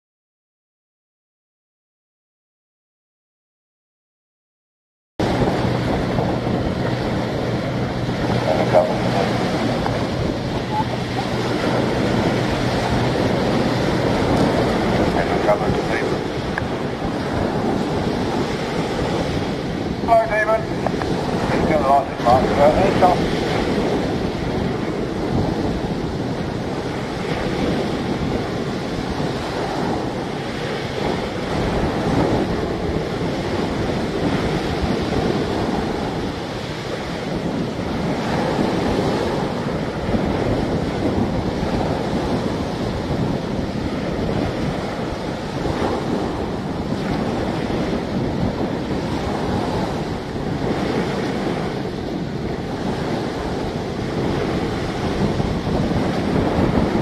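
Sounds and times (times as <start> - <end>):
waves breaking on shingle: 5.2 - 16.8
wind buffeting microphone: 5.2 - 57.0.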